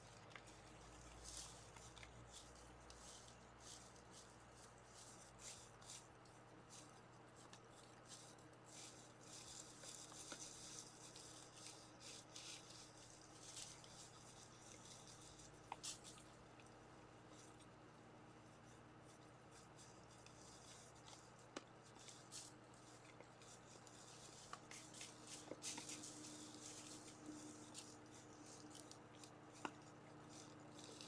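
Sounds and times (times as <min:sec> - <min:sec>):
deer crunching dry leaves: 0:06.7 - 0:16.3, 0:21.9 - 0:31.0.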